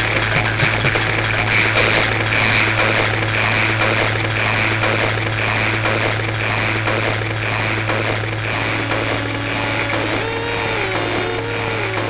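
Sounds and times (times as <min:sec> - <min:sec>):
synthesizer droning noise: 0:00.0 - 0:12.0
clicks: 0:07.8 - 0:12.0.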